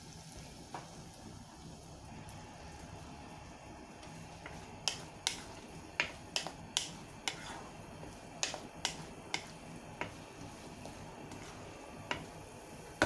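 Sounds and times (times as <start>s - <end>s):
wooden spatula knocking on wok: 4.4s - 10.2s, 11.3s - 12.3s.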